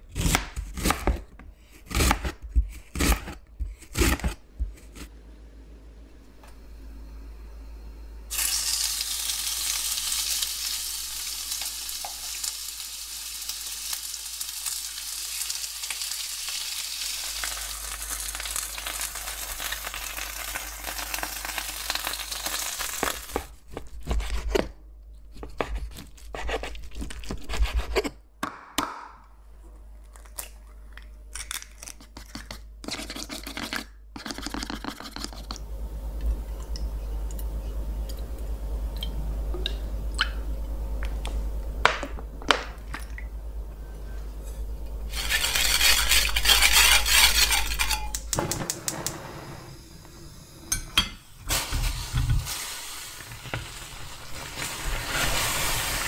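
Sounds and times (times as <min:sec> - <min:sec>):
chicken sizzling on a grill pan: 0:08.3 - 0:23.3.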